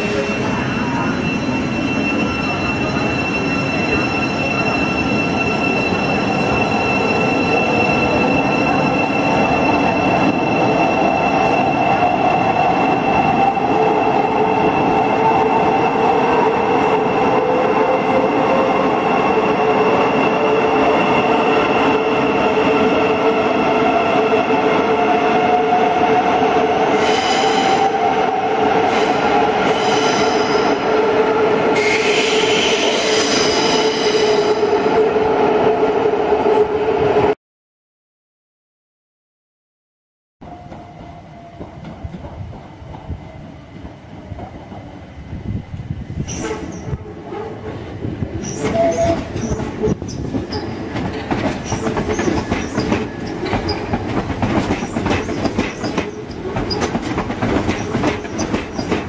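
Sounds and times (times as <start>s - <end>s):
high-pitched squeal: 0.0s - 36.1s
rumble of train wheels: 40.5s - 59.0s.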